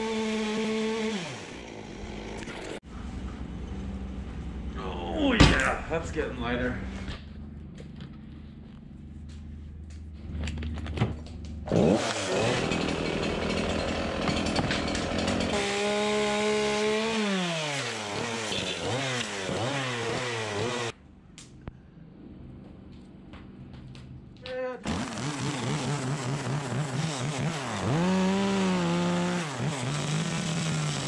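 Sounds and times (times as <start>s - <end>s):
chainsaw revving: 0.0s - 2.8s, 11.6s - 21.0s, 24.8s - 31.0s.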